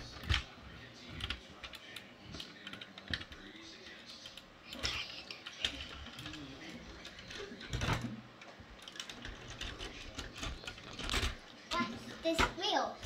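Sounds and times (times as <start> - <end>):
toy car wheels clicking and rattling: 4.3 - 8.0, 8.8 - 12.6.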